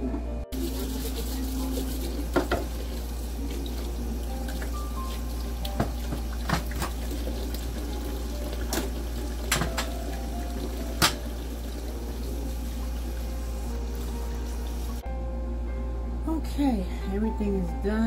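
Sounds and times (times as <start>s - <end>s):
tap running into sink: 2.0s - 3.0s, 4.5s - 7.8s, 8.5s - 11.4s
dishes and utensils clinking: 8.7s - 10.0s, 11.0s - 11.3s.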